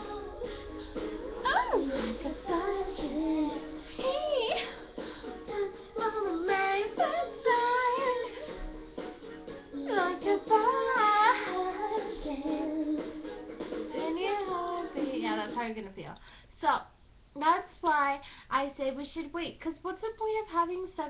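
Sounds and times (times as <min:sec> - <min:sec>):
woman singing: 0:00.0 - 0:08.6, 0:09.8 - 0:13.2, 0:13.9 - 0:15.7.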